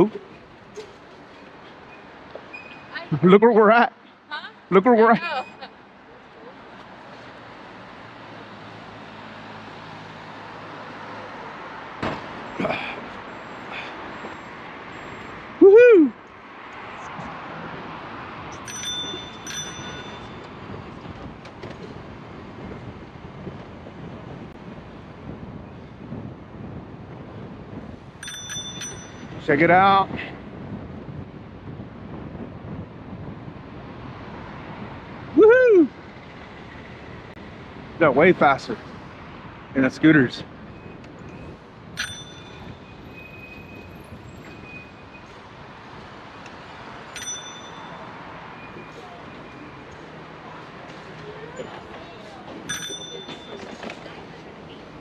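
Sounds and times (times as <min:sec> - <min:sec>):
cars passing: 0:00.0 - 0:55.0
wind and road noise: 0:00.0 - 0:55.0
bicycle riding rumble: 0:16.7 - 0:38.0, 0:40.5 - 0:55.0
bicycle bell ringing: 0:18.5 - 0:20.6, 0:28.2 - 0:29.4, 0:41.9 - 0:43.8, 0:47.1 - 0:48.3, 0:52.7 - 0:53.8
short metallic pings: 0:28.2 - 0:29.4, 0:42.0 - 0:43.0, 0:47.2 - 0:48.2, 0:52.7 - 0:53.6.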